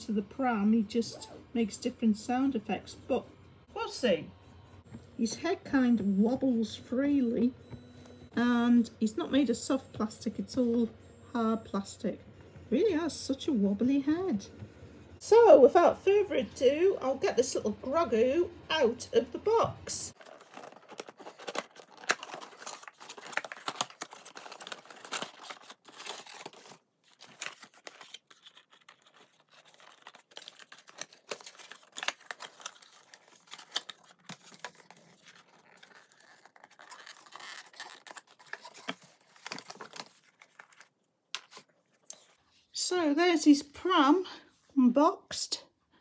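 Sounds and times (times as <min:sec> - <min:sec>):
cardboard rustling and scraping: 0:20.2 - 0:41.7.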